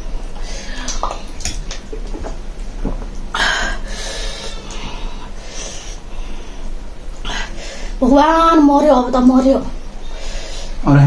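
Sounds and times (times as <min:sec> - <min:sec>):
person breathing hard through mouth: 0:03.4 - 0:08.0.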